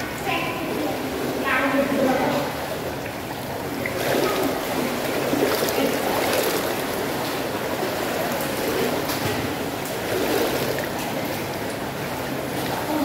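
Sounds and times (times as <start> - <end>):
hot tub water churning: 0.0 - 13.0
light water splashing: 0.0 - 13.0.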